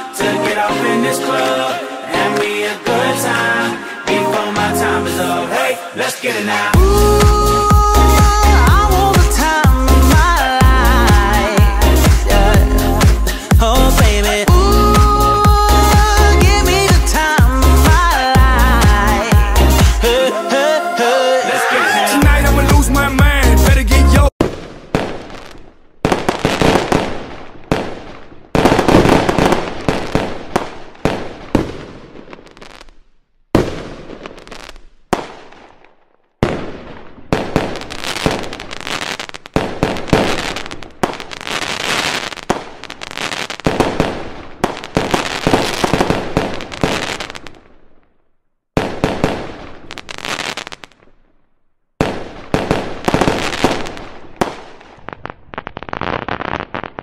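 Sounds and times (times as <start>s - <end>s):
fireworks crackling and popping: 6.7s - 20.1s, 24.3s - 48.2s, 48.8s - 51.4s, 52.0s - 57.0s.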